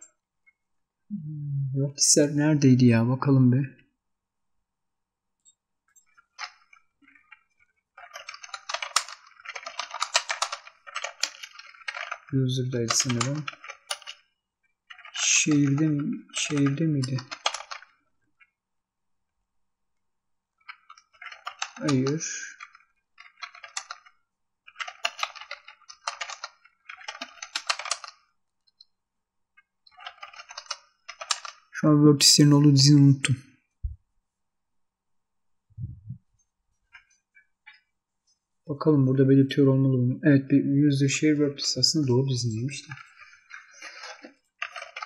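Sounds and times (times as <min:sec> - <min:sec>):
computer keyboard typing: 0:06.0 - 0:14.3, 0:14.9 - 0:18.0, 0:20.6 - 0:28.8, 0:29.9 - 0:31.8, 0:41.9 - 0:45.0.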